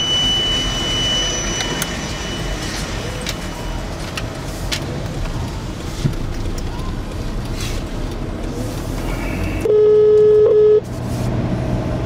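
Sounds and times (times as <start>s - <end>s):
steady high beep: 0.0s - 4.5s, 9.6s - 10.8s
van engine and tyre rumble: 0.0s - 12.0s.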